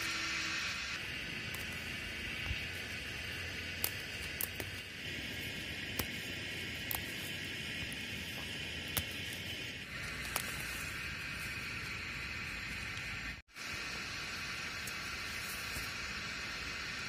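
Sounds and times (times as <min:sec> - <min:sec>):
steady high hiss: 0:00.0 - 0:17.0
leafy shoots snapping: 0:01.3 - 0:11.6.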